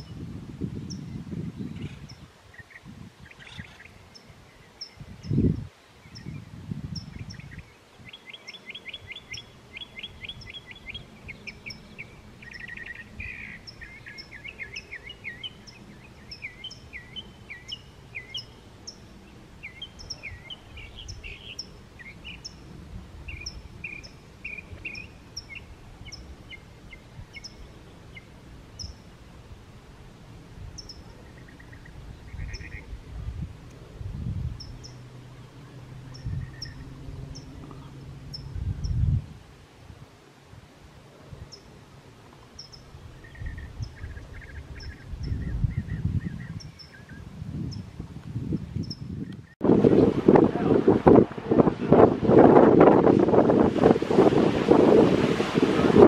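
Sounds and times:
small birds chirping: 0:00.8 - 0:29.5, 0:30.6 - 0:33.0, 0:33.6 - 0:39.1, 0:41.5 - 0:49.6.

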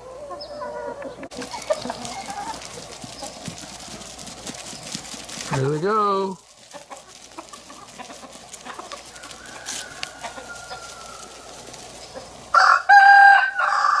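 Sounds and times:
chickens clucking: 0:00.0 - 0:14.0
rooster crowing: 0:09.0 - 0:14.0.

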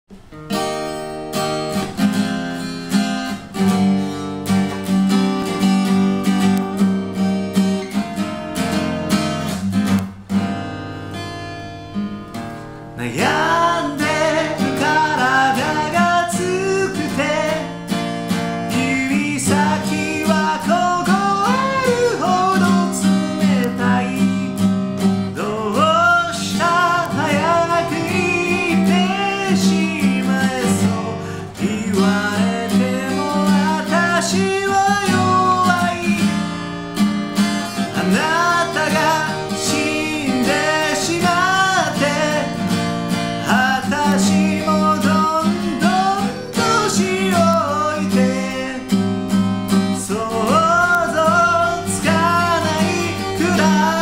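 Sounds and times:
acoustic guitar strumming: 0:00.1 - 0:54.0
person singing: 0:13.0 - 0:18.0, 0:18.6 - 0:36.8, 0:37.6 - 0:54.0.

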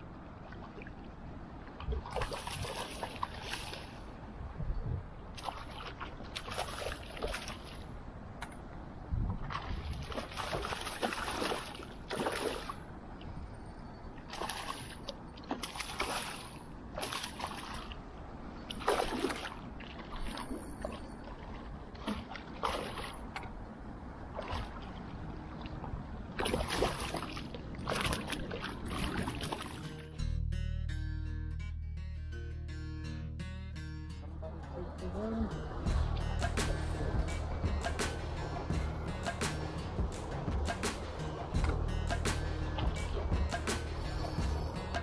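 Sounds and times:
river water splashing: 0:00.0 - 0:30.2, 0:34.6 - 0:45.0
acoustic guitar music: 0:29.8 - 0:45.0.

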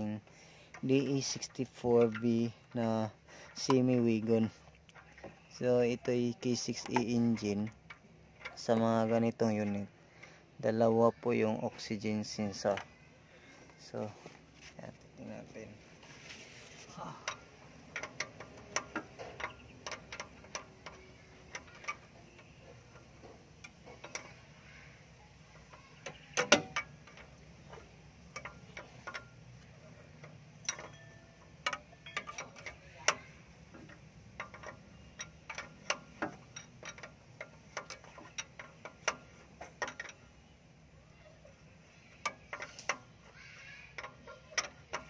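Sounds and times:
metallic clicks of hand tools: 0:00.7 - 0:09.9, 0:17.1 - 0:40.5, 0:42.0 - 0:45.0.

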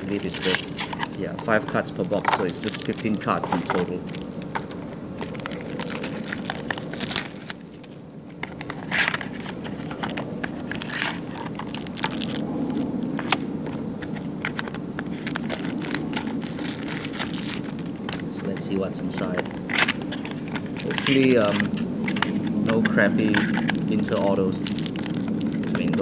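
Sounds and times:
plastic wrapping crinkling: 0:00.0 - 0:18.2, 0:19.3 - 0:22.4, 0:23.2 - 0:26.0
steady low background hum: 0:00.0 - 0:26.0.

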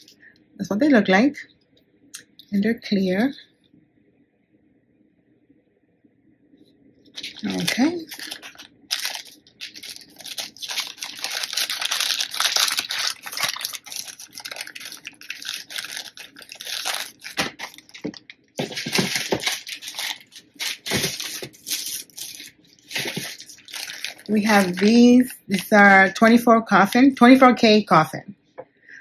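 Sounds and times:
plastic bag crinkling: 0:07.1 - 0:26.4.

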